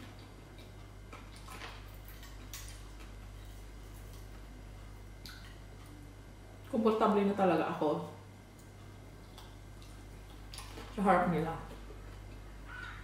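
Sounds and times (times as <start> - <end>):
steady low hum: 0.0 - 13.0
chewing clicks: 5.2 - 5.9, 8.5 - 10.9.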